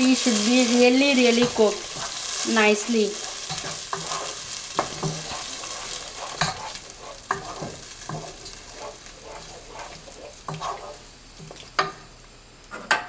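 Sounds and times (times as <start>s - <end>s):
paste sizzling in a pot: 0.0s - 12.5s
spatula scraping a pan: 1.3s - 2.4s, 3.1s - 12.0s.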